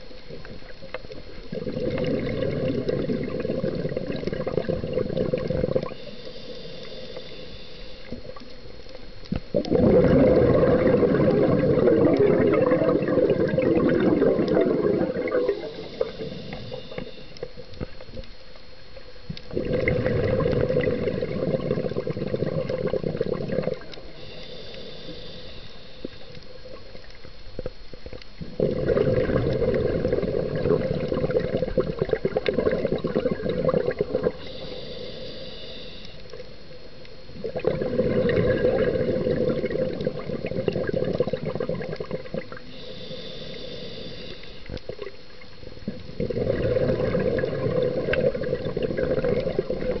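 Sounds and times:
loud bubbling underwater: 1.5s - 5.9s, 9.5s - 15.6s, 19.5s - 23.8s, 28.5s - 34.4s, 37.4s - 42.5s, 46.2s - 50.0s
regulator inhale hiss: 5.6s - 8.9s, 14.0s - 18.0s, 21.8s - 27.1s, 34.1s - 37.0s, 42.5s - 45.5s.

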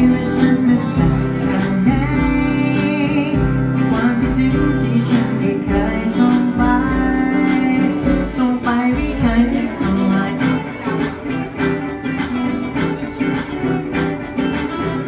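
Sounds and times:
person singing: 0.0s - 12.0s
acoustic guitars: 0.0s - 15.0s
drum beat: 0.0s - 15.0s.

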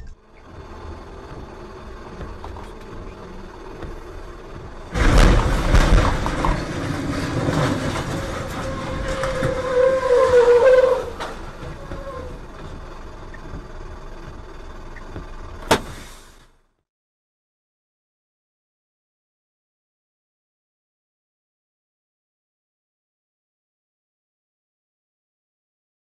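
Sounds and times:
wavering squeal: 0.0s - 13.5s
low rumble: 0.0s - 16.4s
truck crashing crunching and scraping: 0.2s - 16.6s.

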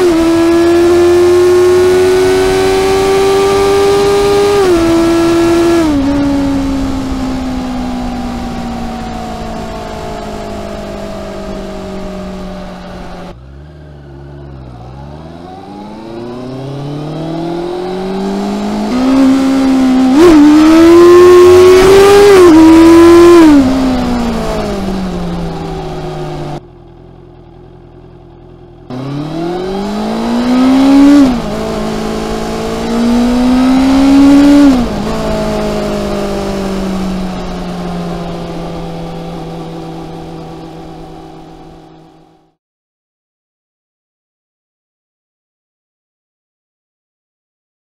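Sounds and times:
motorcycle engine accelerating: 0.0s - 42.6s.

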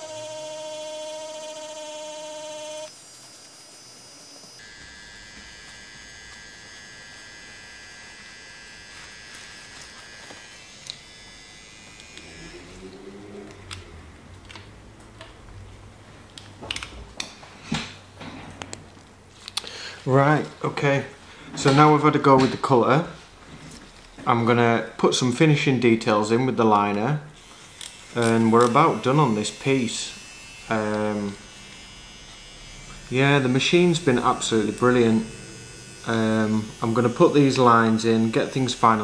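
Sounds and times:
tattoo machine buzzing: 0.0s - 13.0s, 27.4s - 39.0s.

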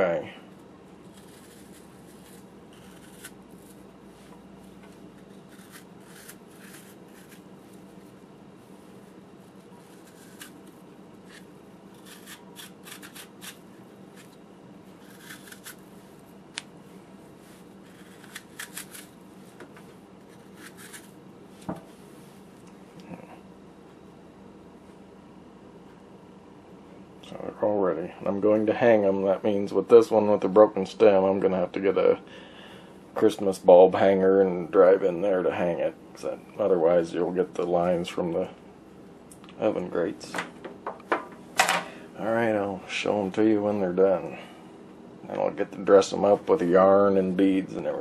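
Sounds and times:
steady low hum: 0.0s - 48.0s
knife carving and scraping apple: 0.4s - 8.2s, 8.9s - 16.3s, 17.3s - 21.2s.

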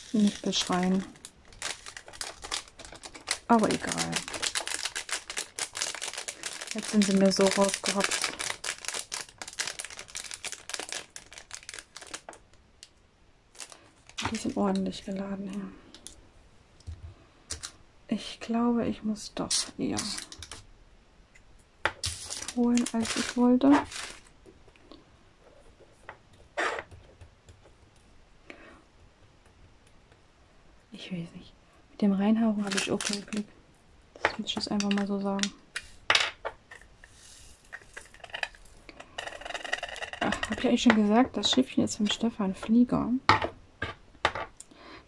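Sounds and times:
plastic bag crinkling: 0.0s - 12.9s, 13.5s - 14.8s, 17.5s - 17.7s, 19.6s - 20.7s, 22.0s - 24.4s, 32.6s - 33.5s, 34.2s - 36.0s, 36.7s - 41.1s.

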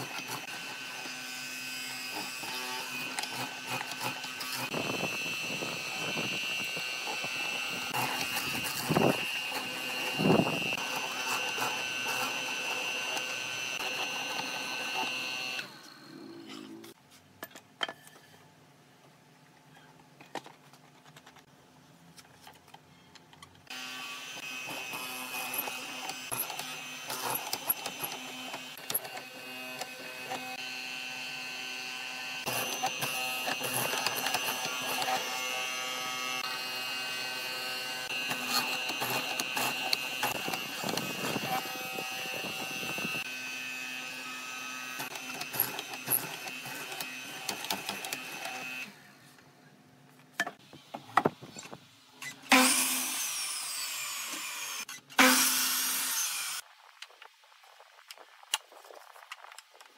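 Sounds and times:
mortiser motor hum and whine: 0.0s - 17.0s, 23.7s - 49.2s.

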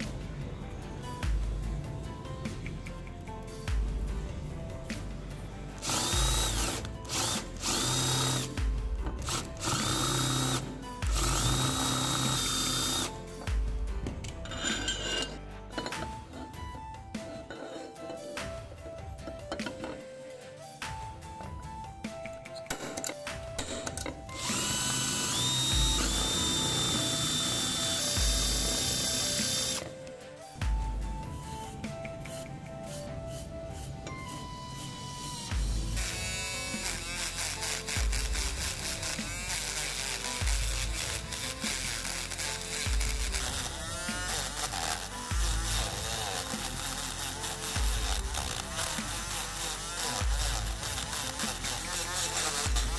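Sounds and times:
music beat: 0.0s - 52.9s
electric drill boring into metal: 5.8s - 13.6s, 14.5s - 16.5s, 22.7s - 29.9s, 35.4s - 52.9s.

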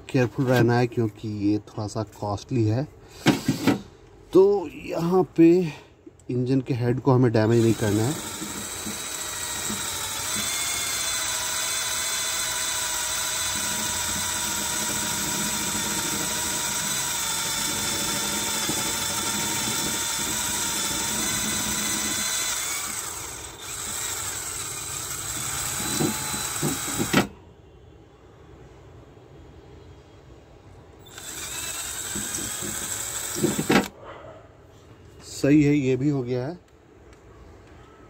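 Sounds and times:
cordless drill whining: 7.4s - 27.3s, 31.0s - 33.9s.

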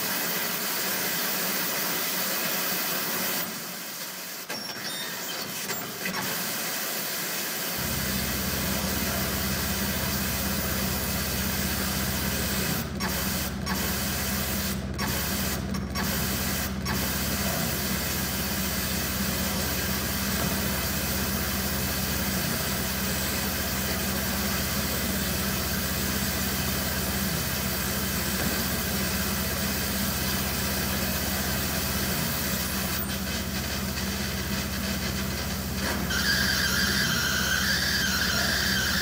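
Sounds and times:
low electronic hum: 7.8s - 13.7s.

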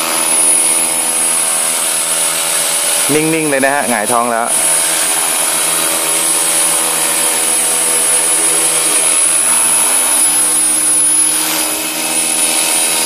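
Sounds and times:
rc helicopter motor and rotor whine: 0.0s - 13.0s.

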